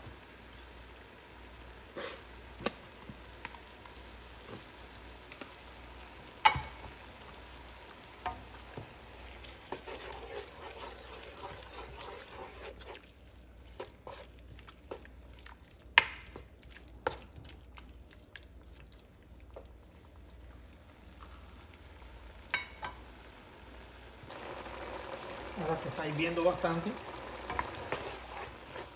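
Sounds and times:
spoon stirring food in pan: 2.5 - 23.1, 24.3 - 28.9
spoon knocking against pan: 6.4 - 6.9.

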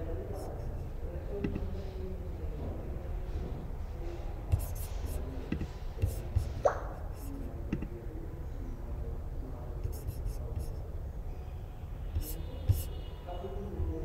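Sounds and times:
steady low hum: 0.0 - 13.0
keyboard and mouse clicks: 7.6 - 8.0.

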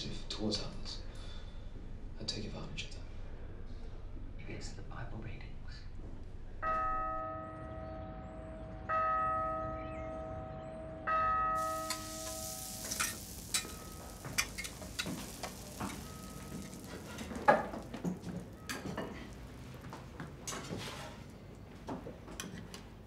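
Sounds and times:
bell ringing: 11.5 - 19.3
dishes and utensils clinking: 11.6 - 19.8
steady hiss: 11.6 - 21.2.

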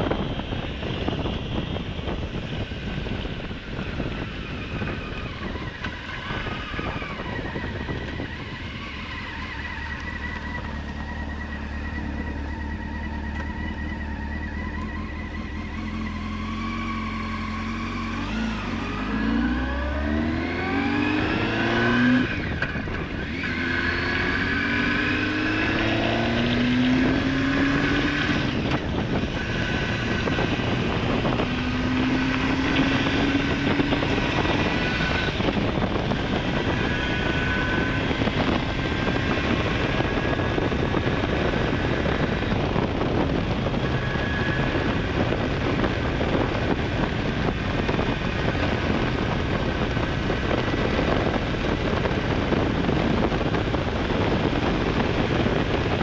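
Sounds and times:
motorcycle engine accelerating: 0.0 - 56.0
wind rushing: 15.0 - 56.0.

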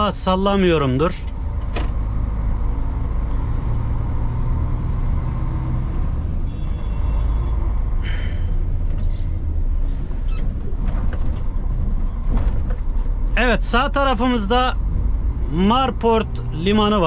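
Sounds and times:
diesel truck engine rumble: 0.0 - 17.0.

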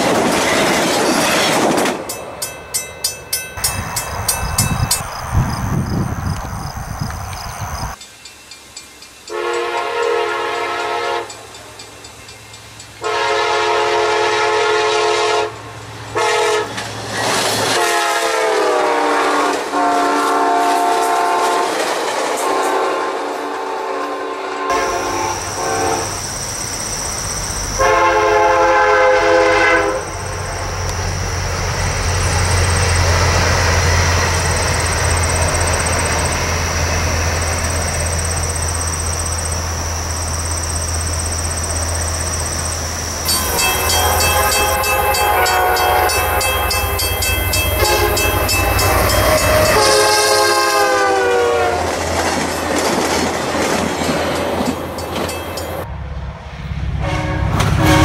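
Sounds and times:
train rumbling past: 0.0 - 58.0
train air horn: 9.3 - 11.4, 13.0 - 16.8, 17.7 - 26.2, 27.8 - 30.7, 43.2 - 52.0, 57.0 - 58.0
rapid high ringing: 37.4 - 50.2.

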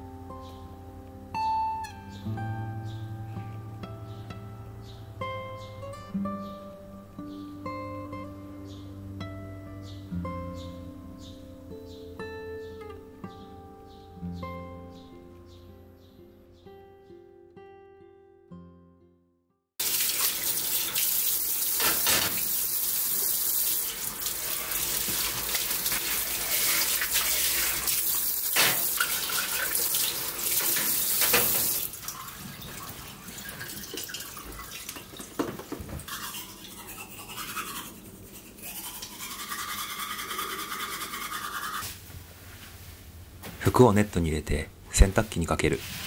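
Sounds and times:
tap running into sink: 21.8 - 22.6, 28.5 - 31.9, 33.5 - 36.1
toothbrush scrubbing teeth: 24.5 - 27.9, 36.0 - 41.9.

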